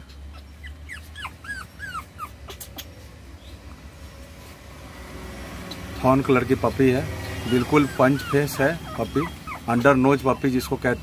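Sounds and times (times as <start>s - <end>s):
puppy whimpering: 0.0s - 3.1s, 7.2s - 11.0s.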